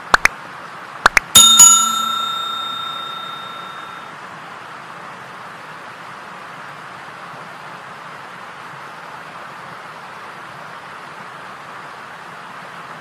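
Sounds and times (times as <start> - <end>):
notification bell ding: 1.4 - 4.0.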